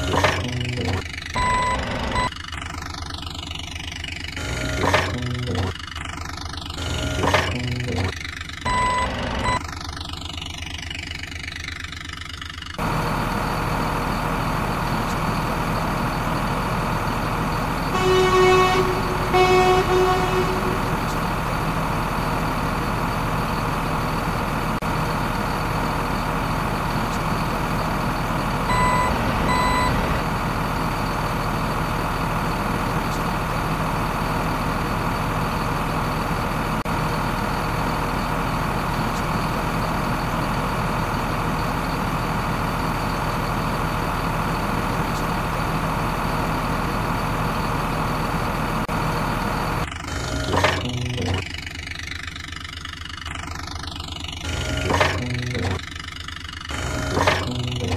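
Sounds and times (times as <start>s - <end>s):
truck engine running: 0.0s - 57.9s
reversing beeps: 0.4s - 2.3s, 8.7s - 9.6s, 28.7s - 30.0s
truck horn toots: 17.9s - 21.2s.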